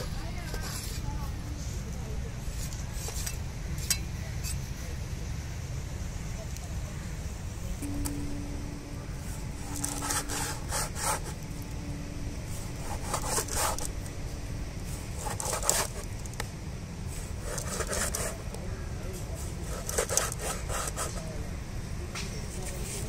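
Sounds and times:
knife sawing through fish flesh: 0:09.8 - 0:11.4, 0:12.8 - 0:13.9, 0:15.2 - 0:16.1, 0:17.4 - 0:18.4, 0:19.6 - 0:21.2.

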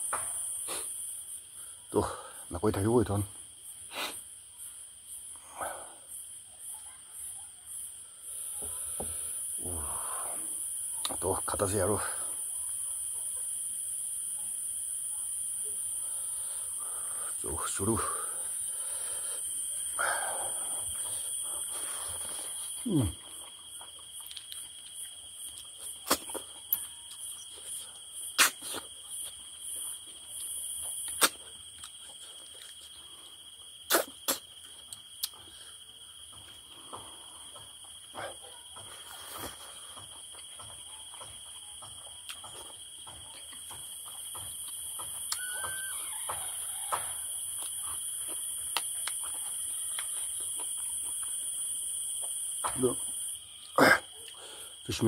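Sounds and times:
insects chirring: 0:00.0 - 0:55.0
person eating with clicks and smacking: 0:20.8 - 0:27.8, 0:28.4 - 0:33.0, 0:33.9 - 0:35.6, 0:38.8 - 0:45.5, 0:47.5 - 0:51.5.

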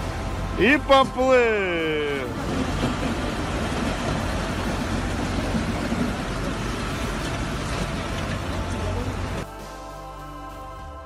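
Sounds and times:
floodwater rushing: 0:00.0 - 0:09.5.

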